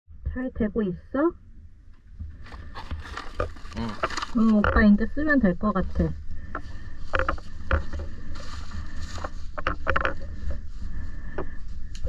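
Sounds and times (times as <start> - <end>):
plastic clicks and knocks: 7.1 - 8.1, 9.6 - 10.2.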